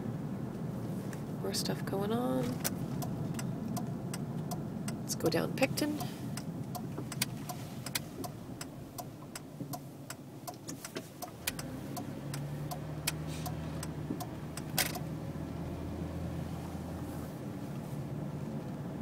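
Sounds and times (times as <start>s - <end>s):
car engine hum: 0.0s - 19.0s
turn-signal indicator ticking: 2.6s - 15.1s.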